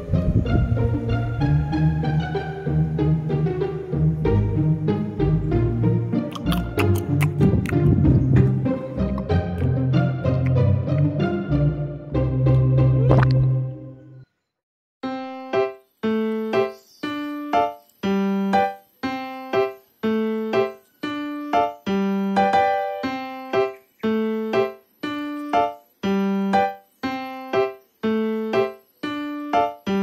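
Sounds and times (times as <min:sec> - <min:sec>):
keyboard chords in steady beat: 0:00.0 - 0:13.8.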